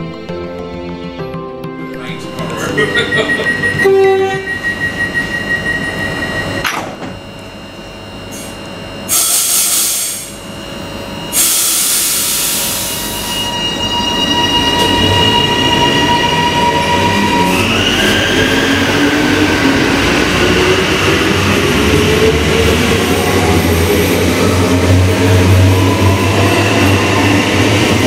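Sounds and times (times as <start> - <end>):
electric train whine: 2.0 - 28.0
air hiss bursts: 11.3 - 13.2.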